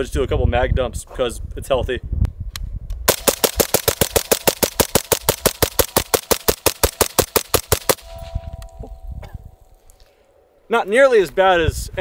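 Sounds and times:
suppressed rifle rapid fire: 3.1s - 8.2s.

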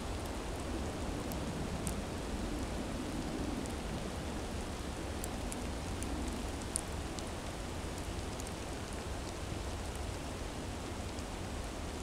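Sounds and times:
faint light ticks: 0.0s - 4.1s, 5.2s - 10.3s, 11.0s - 11.3s.

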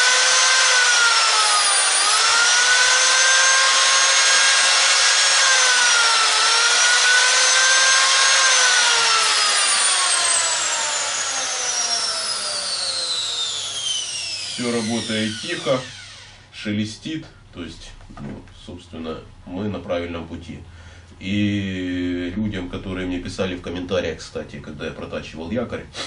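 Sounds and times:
electric motor whining: 0.0s - 16.5s.

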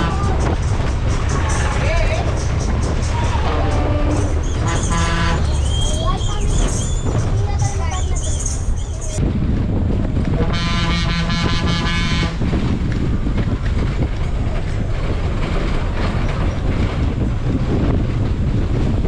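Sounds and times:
diesel engine rumble: 0.0s - 19.0s
bus horn blast: 3.4s - 5.6s, 10.4s - 12.5s.

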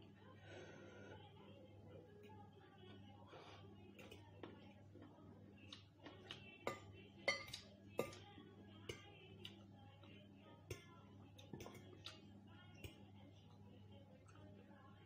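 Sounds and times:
faint steady hum: 0.0s - 15.0s
fork clinking against ceramic bowl: 6.7s - 8.2s.

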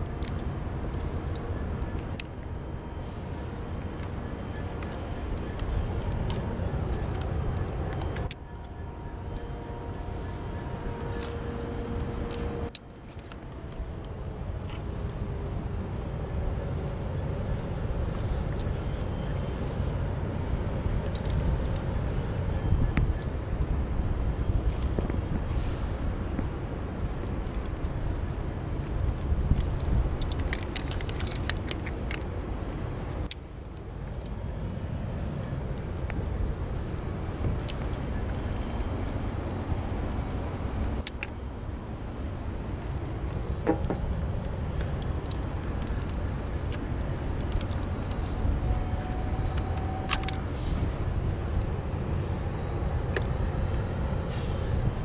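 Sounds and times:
metal climbing gear jangling: 0.0s - 2.7s, 3.6s - 15.4s, 16.9s - 19.5s, 20.9s - 23.3s, 24.4s - 25.2s, 27.2s - 40.1s, 40.9s - 41.4s, 42.6s - 52.0s
carabiners clinking and clicking: 0.0s - 23.7s, 24.4s - 25.4s, 26.9s - 54.9s
wind rumble on microphone: 0.0s - 55.0s.

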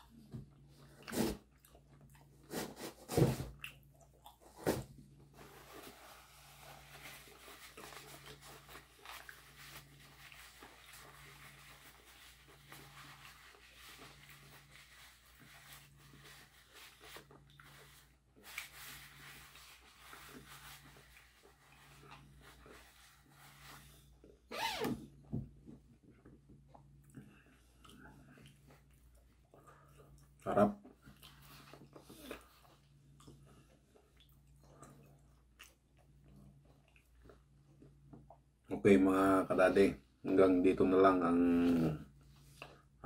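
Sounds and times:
quiet chewing: 0.0s - 2.6s, 3.5s - 4.6s, 6.4s - 23.3s, 25.8s - 38.6s.

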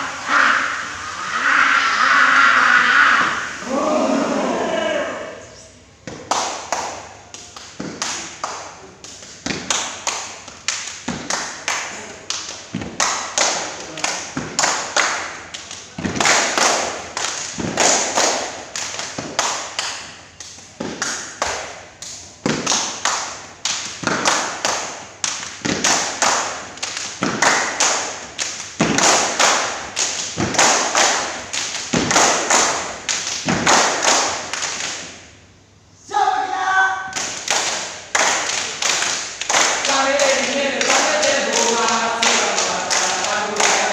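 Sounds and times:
voices shouting: 0.2s - 5.5s
thigh slaps: 6.0s - 35.2s
hand claps: 6.0s - 35.3s, 37.1s - 43.9s.

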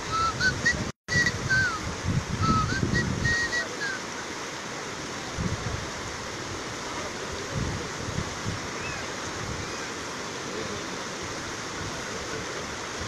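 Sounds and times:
high whistled chirps: 0.0s - 4.0s
river rushing: 0.0s - 13.0s.

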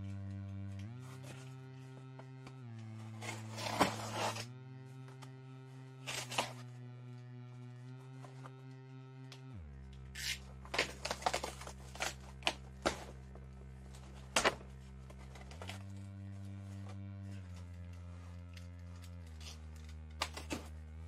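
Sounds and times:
keyboard chords music: 0.0s - 19.4s.

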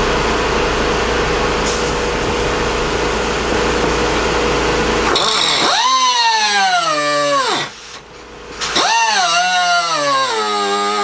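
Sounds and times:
mechanical hum and hiss: 0.0s - 5.2s, 7.4s - 8.8s
pneumatic cut-off wheel whining: 5.0s - 11.0s.

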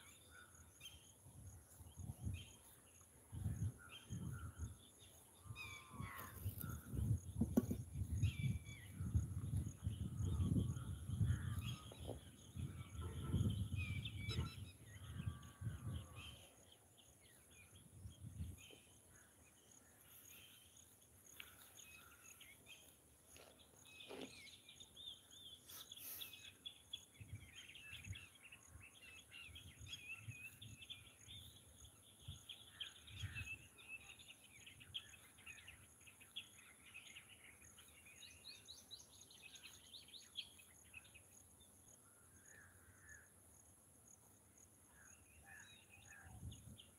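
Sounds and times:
small birds chirping: 0.0s - 43.3s.

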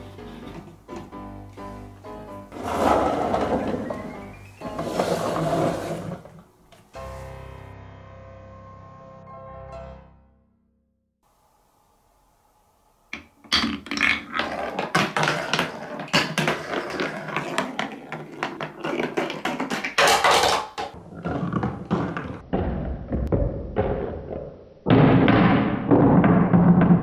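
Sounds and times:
marble rolling down wooden track: 2.5s - 6.5s, 13.2s - 27.0s.

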